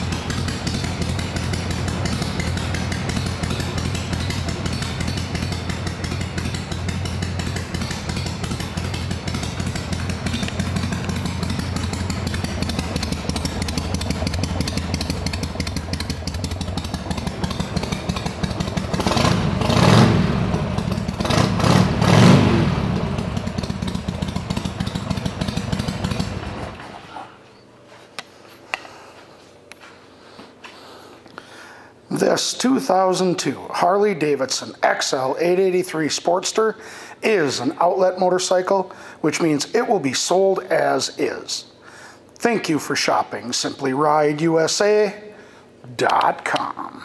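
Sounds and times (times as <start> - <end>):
motorcycle engine idling: 0.0 - 27.1.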